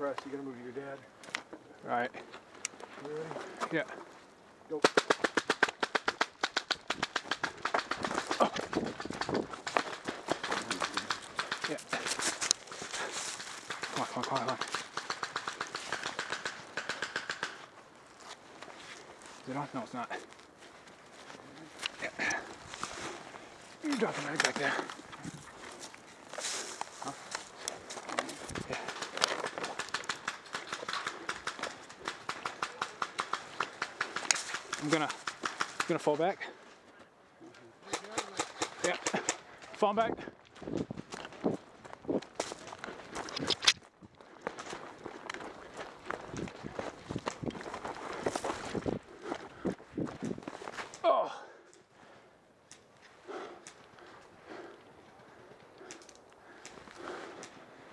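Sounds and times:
footsteps crunching on stones: 8.0 - 16.1, 17.6 - 30.2, 40.4 - 51.0.

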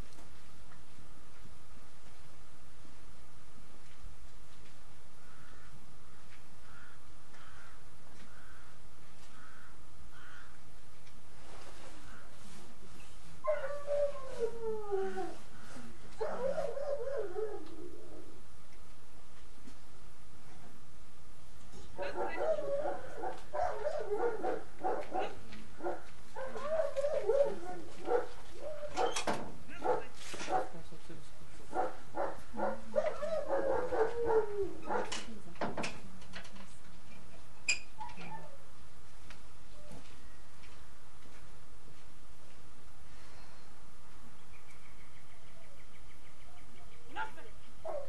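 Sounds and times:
crow cawing: 5.2 - 10.6
dog whining and yipping: 26.4 - 29.3, 32.9 - 35.1, 38.0 - 38.6.

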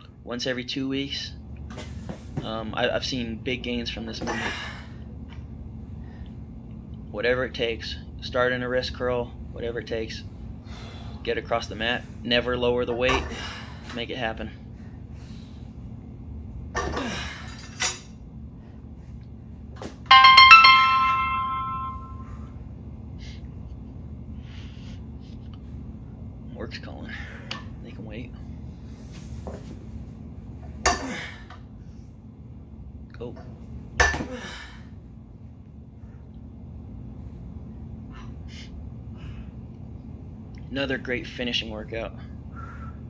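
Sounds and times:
phone ringtone chime notes: 20.1 - 22.3.

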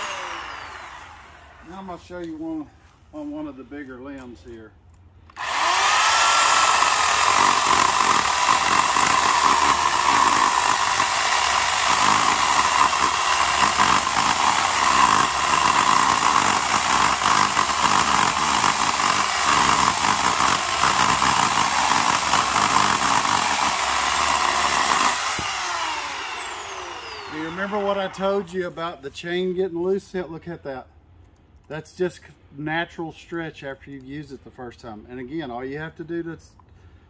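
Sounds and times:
electric chainsaw cutting wood: 0.0 - 1.5, 5.3 - 28.6.

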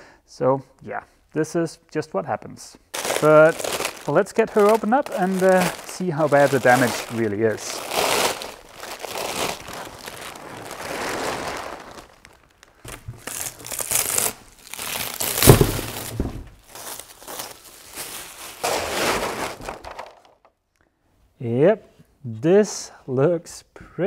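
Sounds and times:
plastic film crinkling: 2.9 - 20.6
peel ply ripping away: 3.0 - 17.0, 18.6 - 20.3.

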